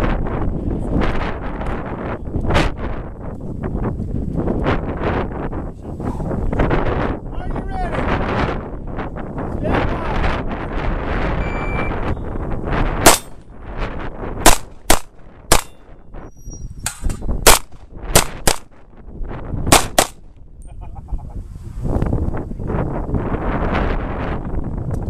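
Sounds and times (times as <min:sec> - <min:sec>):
gunshots: 0:13.0 - 0:13.4, 0:14.4 - 0:15.8, 0:16.9 - 0:18.7, 0:19.7 - 0:20.2.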